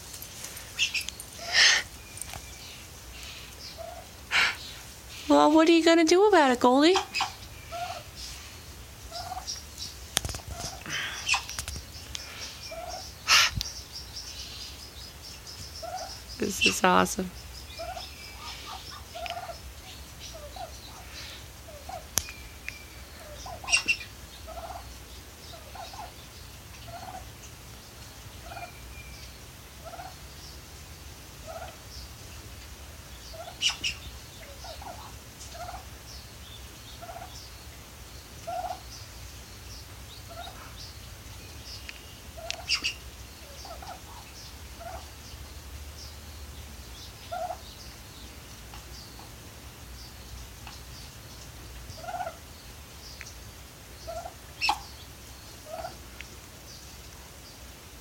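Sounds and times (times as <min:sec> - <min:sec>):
turkey sharp calls: 0:00.4 - 0:05.3, 0:06.2 - 0:14.8, 0:15.5 - 0:30.3, 0:31.4 - 0:32.6, 0:33.2 - 0:36.1, 0:36.8 - 0:37.5, 0:38.4 - 0:39.0, 0:40.3 - 0:40.8, 0:41.7 - 0:45.1, 0:47.2 - 0:47.6, 0:52.0 - 0:52.5, 0:54.0 - 0:56.3
turkey clucking softly: 0:03.2 - 0:04.8, 0:07.0 - 0:08.2, 0:09.1 - 0:09.6, 0:10.4 - 0:11.6, 0:17.8 - 0:22.2, 0:23.2 - 0:24.9, 0:26.8 - 0:27.3, 0:28.4 - 0:28.8, 0:29.8 - 0:30.2, 0:31.4 - 0:31.8, 0:33.3 - 0:35.9, 0:37.0 - 0:37.4, 0:38.4 - 0:38.8, 0:40.3 - 0:40.7, 0:42.4 - 0:45.1, 0:47.3 - 0:47.6, 0:52.0 - 0:52.4, 0:54.0 - 0:54.9, 0:55.6 - 0:56.0.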